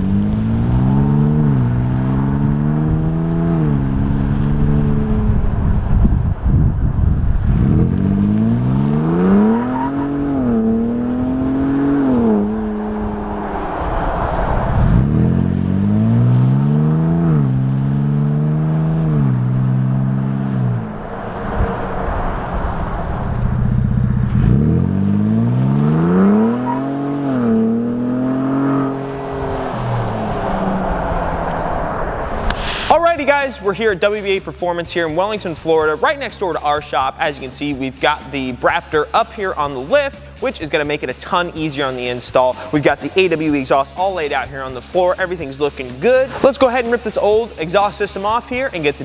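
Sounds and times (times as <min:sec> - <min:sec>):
engine exhaust accelerating hard: 0:00.0 - 0:33.6.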